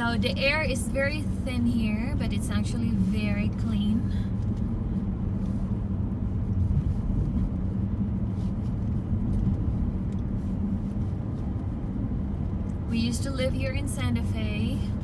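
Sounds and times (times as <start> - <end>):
car engine hum: 0.0 - 15.0
tyre noise on road: 2.4 - 14.1.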